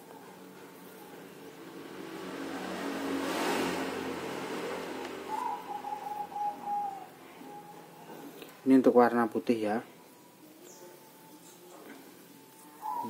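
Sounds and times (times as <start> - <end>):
motor vehicle passing by: 0.0 - 8.4.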